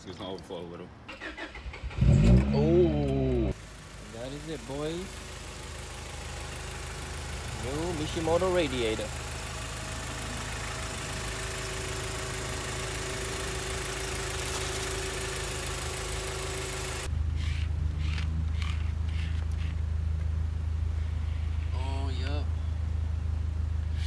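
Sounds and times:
car engine idling: 1.2 - 24.0.

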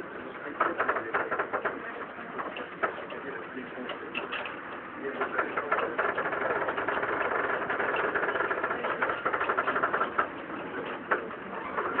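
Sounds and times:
tram rattling clatter: 0.0 - 12.0
sharp knocks: 5.2 - 12.0.

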